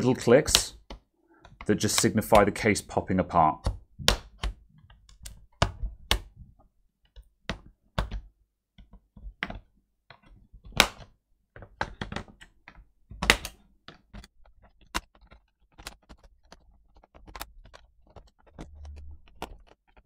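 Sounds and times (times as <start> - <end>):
plastic clips snapping: 0.5 - 2.7, 11.7 - 20.0.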